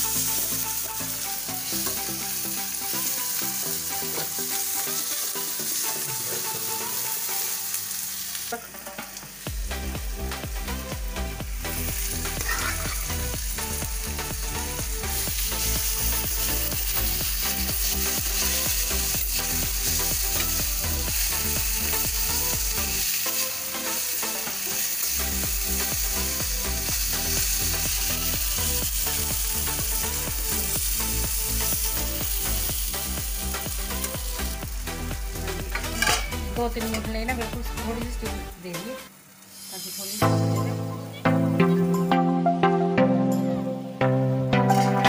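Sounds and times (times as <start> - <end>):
oil sizzling in a pan: 0.0 - 41.6
steel spoon scraping a pan: 35.7 - 37.0.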